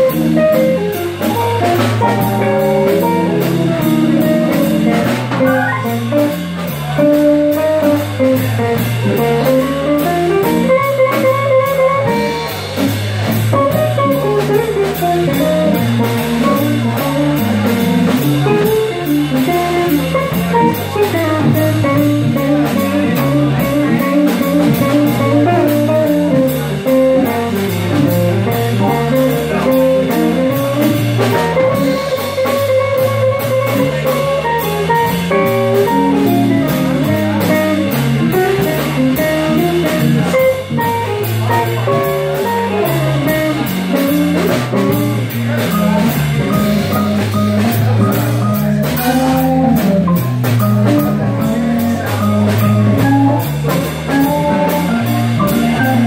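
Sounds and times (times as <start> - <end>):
electric guitar soloing: 0.0 - 12.9
drum kit: 0.0 - 56.0.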